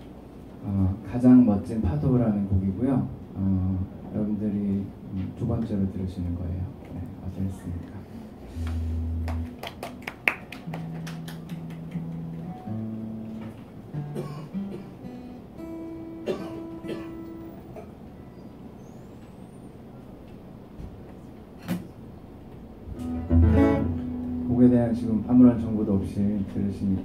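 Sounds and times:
acoustic guitar plucked notes: 8.5s - 9.6s, 10.7s - 17.8s, 23.0s - 24.9s.

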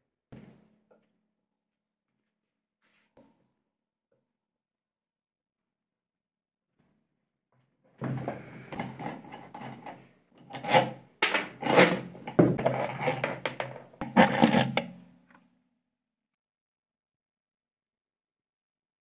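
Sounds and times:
metal scraping and clinking: 8.2s - 15.0s.

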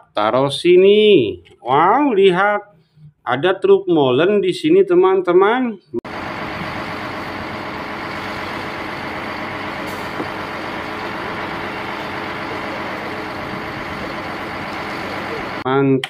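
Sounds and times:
diesel engine running: 6.0s - 15.6s.

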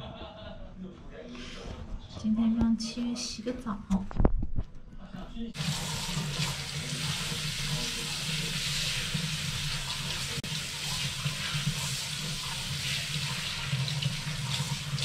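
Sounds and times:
tap water running: 5.6s - 15.0s.

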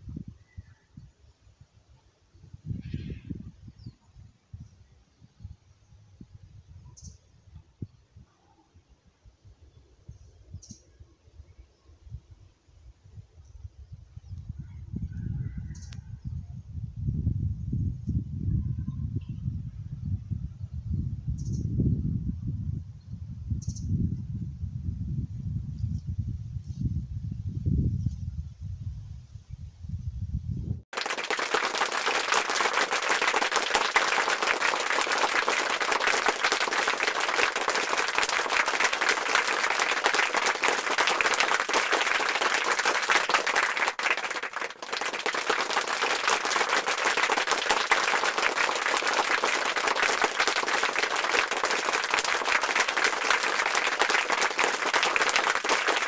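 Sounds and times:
applause: 30.9s - 56.0s.

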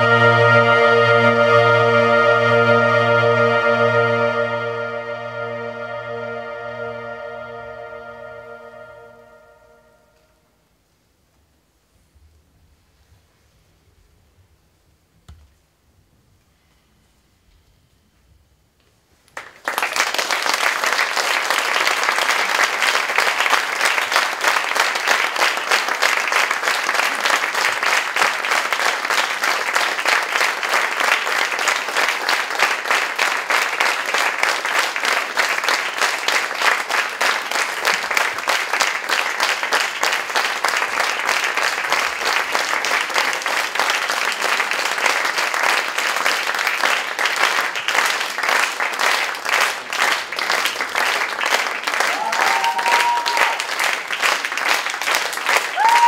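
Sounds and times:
audience applauding: 19.4s - 56.0s.

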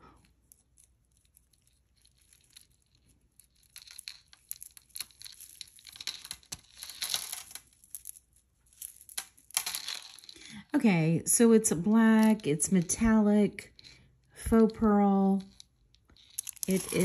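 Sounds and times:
beaded chain clicking and rustling: 0.1s - 10.7s, 11.8s - 14.4s, 15.2s - 17.0s.

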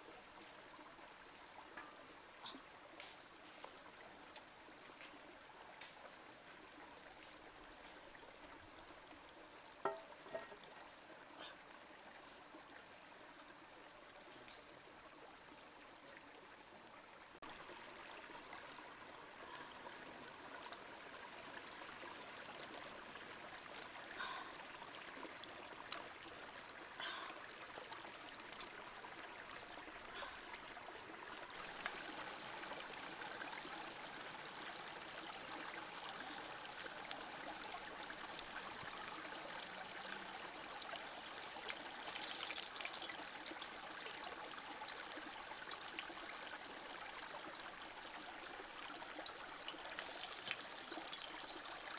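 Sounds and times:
stream trickling over rocks: 0.0s - 51.9s
water poured into metal pan: 42.0s - 43.8s, 50.0s - 51.9s.

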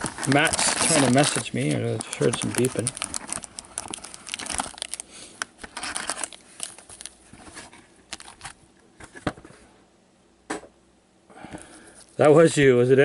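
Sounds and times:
trading cards clicking and rustling: 0.0s - 8.6s.

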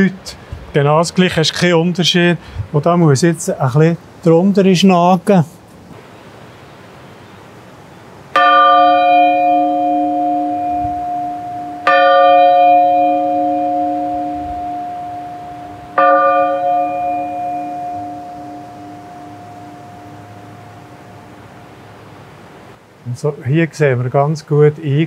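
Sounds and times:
church bell ringing: 8.3s - 21.7s.

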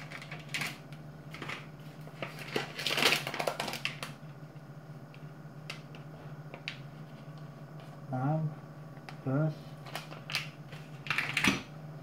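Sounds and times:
plastic packaging crinkling: 0.0s - 4.2s, 9.8s - 11.5s
steady low hum: 0.0s - 12.0s.

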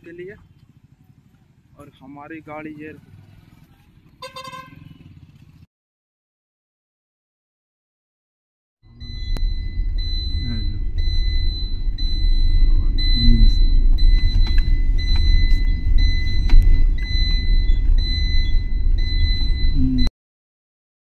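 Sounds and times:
car engine and road rumble: 0.0s - 5.7s, 8.9s - 20.1s
car warning chime beeping: 8.9s - 20.1s.

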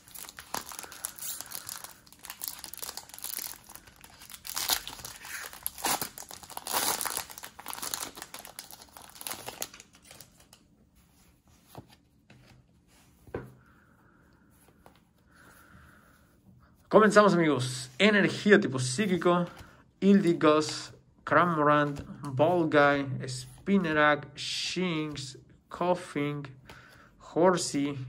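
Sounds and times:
foil wrapper tearing and crinkling: 0.0s - 10.5s.

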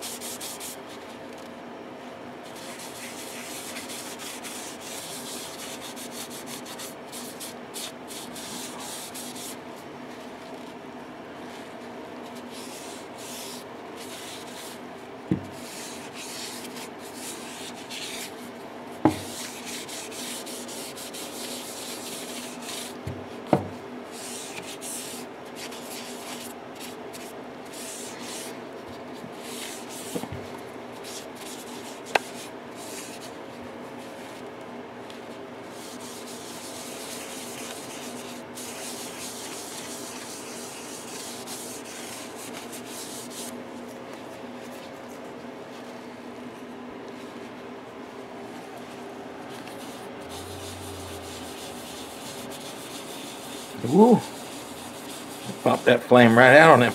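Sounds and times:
rag rubbing wood: 19.1s - 25.2s, 49.6s - 56.9s.

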